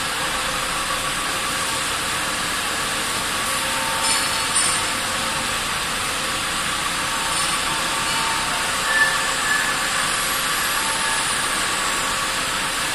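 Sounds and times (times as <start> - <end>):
faint high whine: 7.0 - 12.4.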